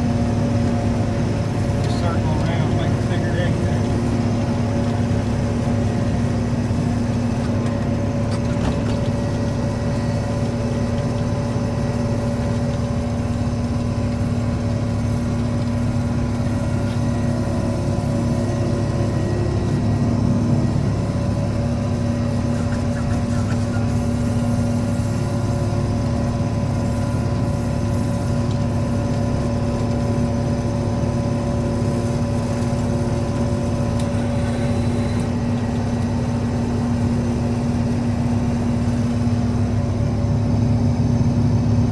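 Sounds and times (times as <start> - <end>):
harvester engine drone: 0.0 - 41.9
steady hum: 9.2 - 41.9.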